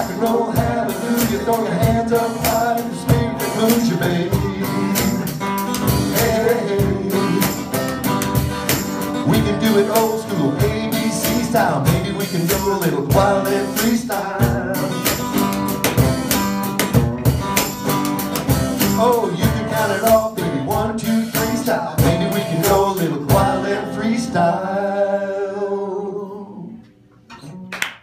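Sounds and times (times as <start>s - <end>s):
man singing: 0.0s - 7.9s, 9.2s - 15.4s, 18.8s - 26.9s
acoustic guitar strumming: 0.0s - 27.8s.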